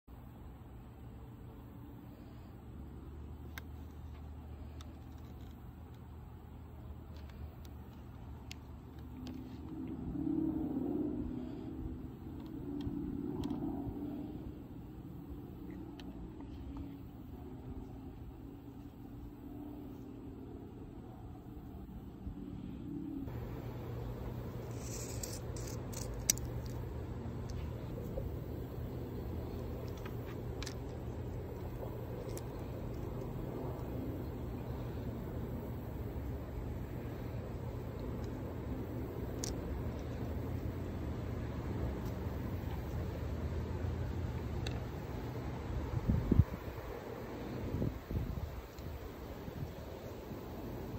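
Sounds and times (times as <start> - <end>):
low hum: 0.1 - 50.9
passing motor vehicle rumble: 8.3 - 49.6
pellet magazine clicks and scrapes: 24.7 - 26.8.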